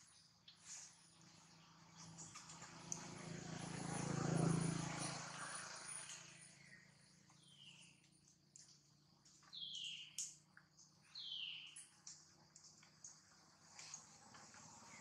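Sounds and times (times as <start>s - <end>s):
distant engine hum: 0.0s - 15.0s
small chirps: 5.4s - 15.0s.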